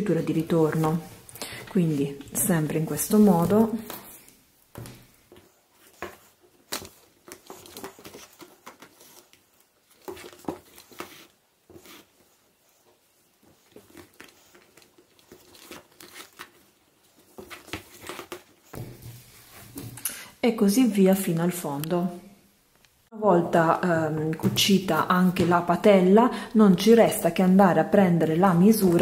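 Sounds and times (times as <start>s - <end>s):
leather bag rustling and crinkling: 12.8s - 20.0s.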